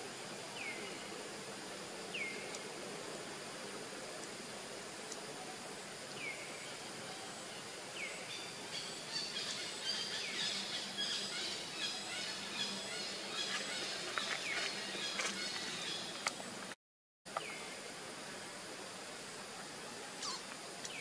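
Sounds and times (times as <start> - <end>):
steady hiss: 0.0 - 21.0
birds chirping: 6.2 - 16.7.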